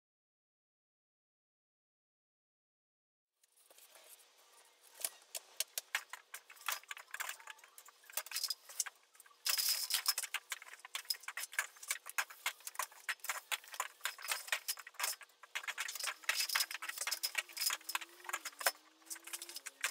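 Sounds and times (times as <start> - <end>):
window blind slats rattling: 5.0 - 19.9.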